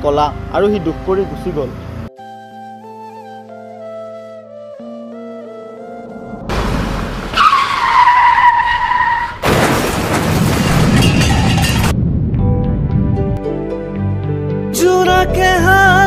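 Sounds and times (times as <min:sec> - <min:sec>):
vehicle rushing past: 0:06.0 - 0:08.4
tyres screeching: 0:06.5 - 0:09.8
loud crash: 0:09.2 - 0:12.5.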